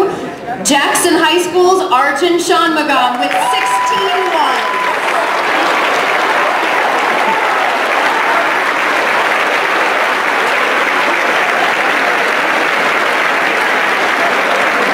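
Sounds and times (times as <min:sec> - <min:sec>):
audience applauding: 0:03.0 - 0:14.9.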